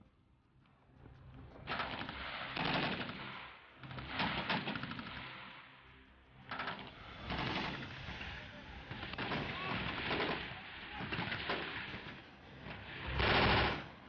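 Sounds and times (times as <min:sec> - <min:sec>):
rapid rifle fire: 0:01.7 - 0:05.5, 0:06.5 - 0:14.0.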